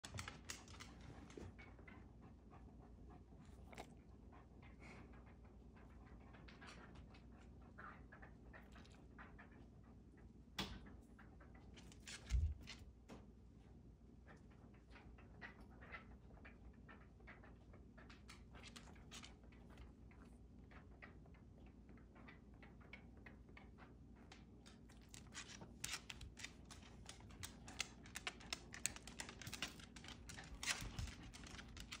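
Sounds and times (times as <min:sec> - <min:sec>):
dog claws clicking on wooden floor: 0:00.0 - 0:01.4, 0:11.7 - 0:12.9, 0:18.2 - 0:19.9, 0:24.3 - 0:32.0.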